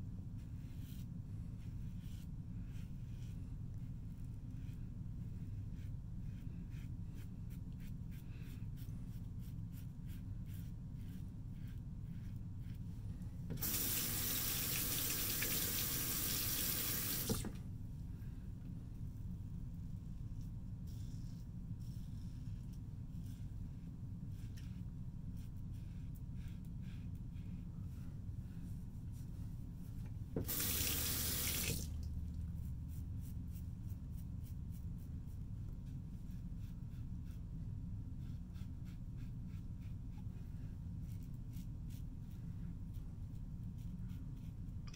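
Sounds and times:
tap water running: 13.6s - 17.5s, 30.4s - 32.1s.

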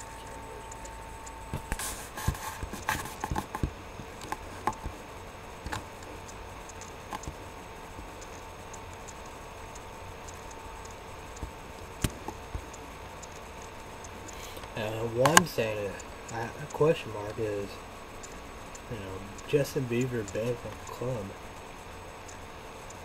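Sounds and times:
faint steady hum: 0.0s - 23.0s
mouse clicks: 5.6s - 7.4s.

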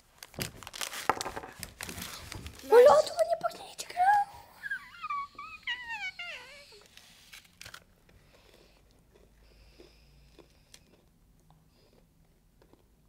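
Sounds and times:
child's wordless voice sliding: 2.6s - 6.8s
biscuits being chewed: 6.4s - 13.0s.

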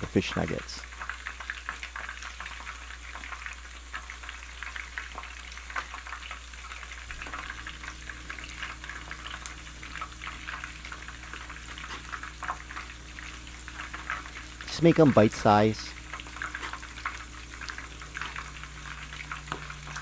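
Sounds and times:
crackling hiss: 0.0s - 20.0s.

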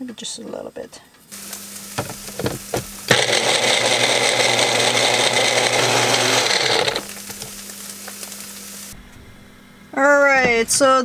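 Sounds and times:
blender motor running: 1.4s - 9.0s.

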